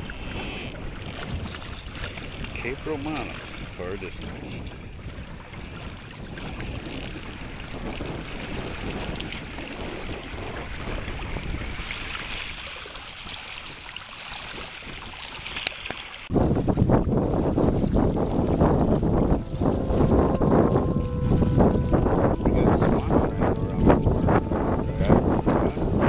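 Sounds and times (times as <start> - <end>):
water rushing along hull: 0.0 - 26.0
wind on microphone: 0.0 - 26.0
wake splashing: 10.7 - 26.0.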